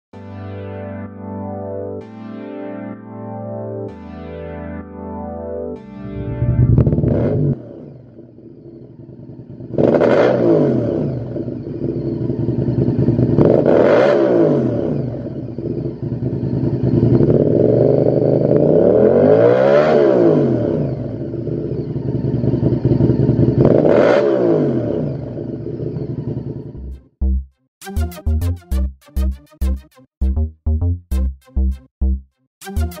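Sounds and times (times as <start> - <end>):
motorcycle engine idling and revving: 6.1 - 27.4.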